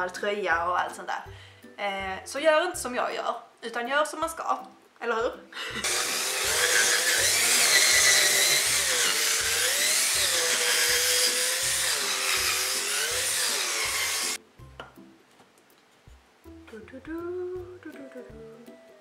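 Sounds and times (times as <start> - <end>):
drill boring into wood: 5.8 - 14.4.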